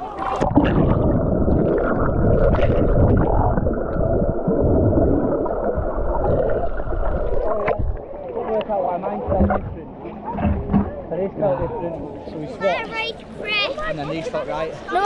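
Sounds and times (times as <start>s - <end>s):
muffled underwater rushing and bubbling: 0.0s - 11.0s.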